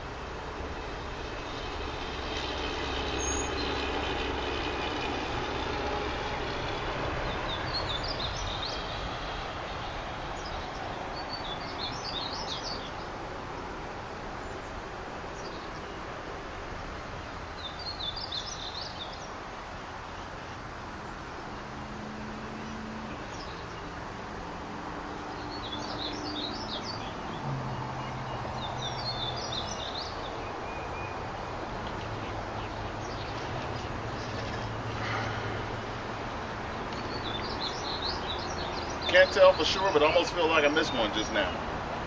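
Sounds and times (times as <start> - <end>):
distant engine drone: 0.0 - 42.0
steady background hiss: 0.0 - 42.0
small birds chirping: 0.6 - 6.0, 6.8 - 13.8, 17.2 - 21.8, 25.2 - 41.7.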